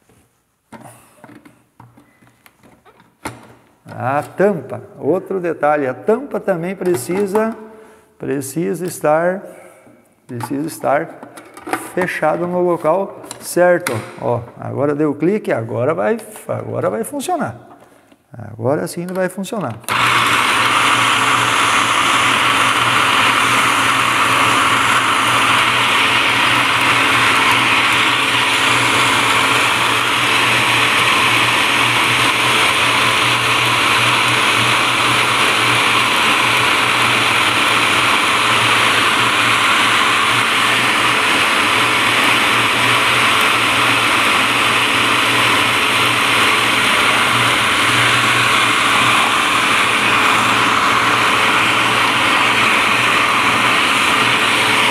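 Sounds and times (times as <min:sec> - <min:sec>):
food processor shredding leaves: 0:19.9 - 0:54.9.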